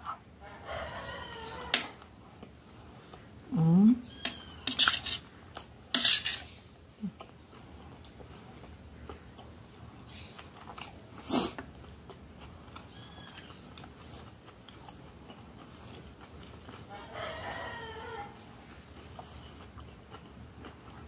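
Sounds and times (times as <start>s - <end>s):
chewing: 0.0s - 3.4s, 4.3s - 21.0s
fork scraping on metal plate: 4.2s - 5.3s, 5.9s - 6.6s.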